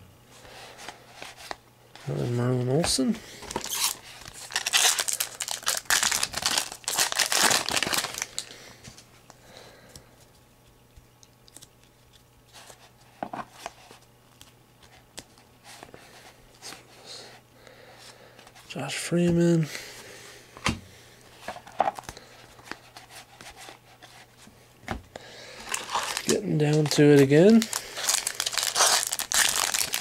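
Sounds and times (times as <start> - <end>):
foil wrapper crinkling: 3.5 - 8.5, 25.5 - 30.0.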